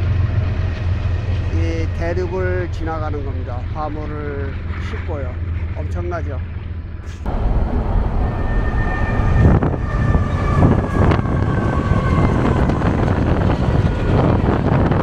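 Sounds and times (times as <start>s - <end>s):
freight train rumbling: 0.0s - 15.0s
faint high ringing: 7.3s - 9.7s.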